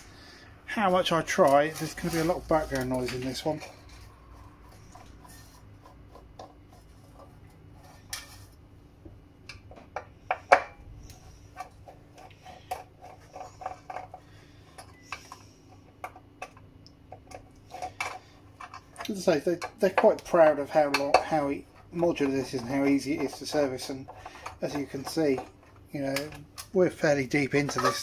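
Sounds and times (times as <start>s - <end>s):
faint hum: 2.3s - 19.0s.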